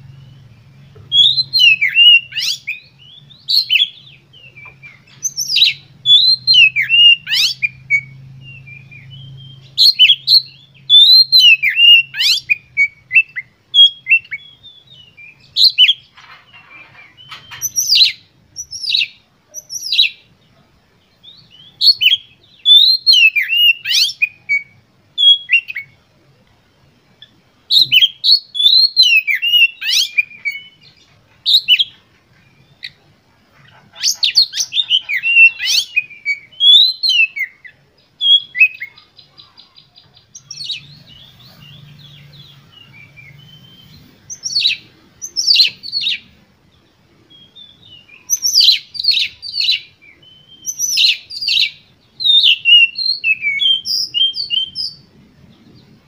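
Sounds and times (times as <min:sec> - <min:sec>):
bird singing whistled phrases: 0:00.0 - 0:16.1, 0:21.2 - 0:26.0, 0:27.7 - 0:30.9, 0:31.5 - 0:31.9, 0:34.0 - 0:46.3, 0:47.3 - 0:55.1
faint low hum: 0:00.0 - 0:56.0.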